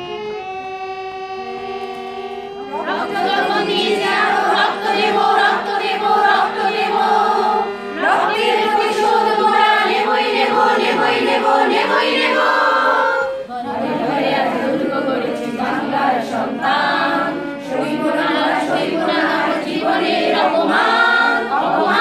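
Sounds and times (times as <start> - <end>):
harmonium holding steady notes: 0.0 - 22.0
women singing together: 2.7 - 22.0.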